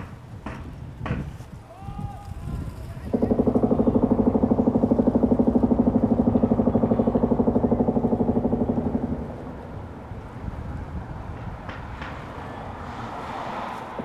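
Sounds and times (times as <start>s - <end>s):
demolition hammer pounding concrete: 0.0s - 1.4s, 3.0s - 9.6s.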